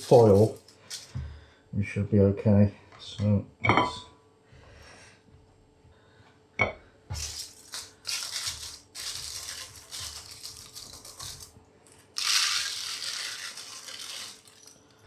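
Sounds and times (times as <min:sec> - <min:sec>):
dry rice pouring rattle: 0:00.0 - 0:00.6, 0:07.2 - 0:11.5, 0:12.1 - 0:15.0
aluminium foil crinkling: 0:00.0 - 0:01.2, 0:07.2 - 0:15.0.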